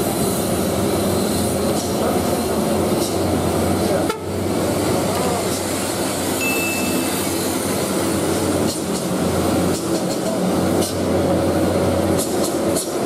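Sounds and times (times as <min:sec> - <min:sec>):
diesel truck engines droning: 0:00.0 - 0:13.0
short high whistle: 0:06.4 - 0:07.2.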